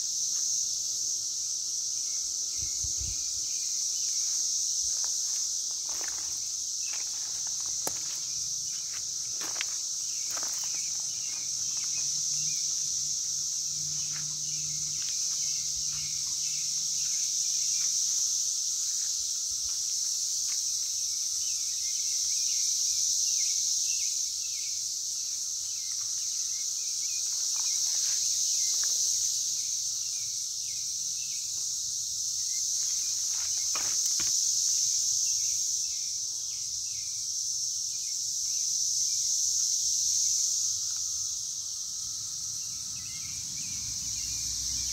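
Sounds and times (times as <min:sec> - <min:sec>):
insects droning: 0:00.0 - 0:44.9.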